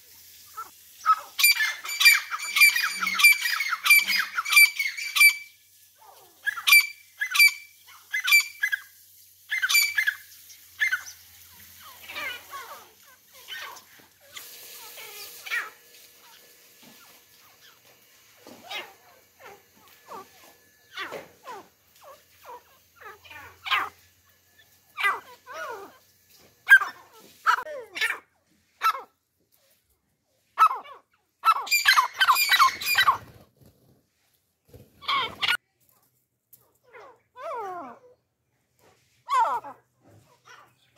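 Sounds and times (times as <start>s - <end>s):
francolins calling: 0.6s - 5.6s, 6.4s - 27.7s, 31.4s - 33.4s.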